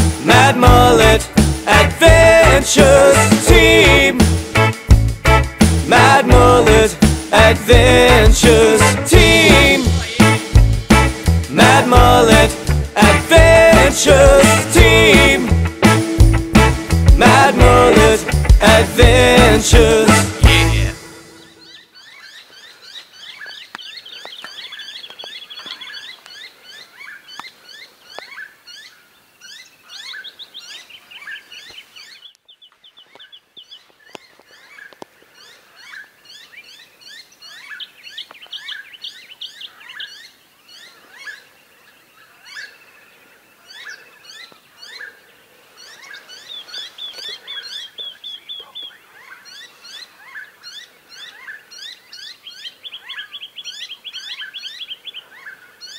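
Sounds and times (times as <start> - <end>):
chorus of birds calling: 16.8 - 55.9.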